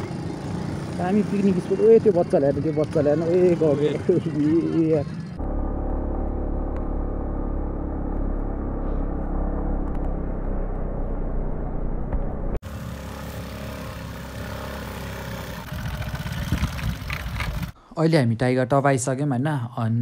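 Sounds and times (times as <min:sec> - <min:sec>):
scooter engine running: 0:00.0 - 0:17.8
quieter hissy engine: 0:12.7 - 0:17.4.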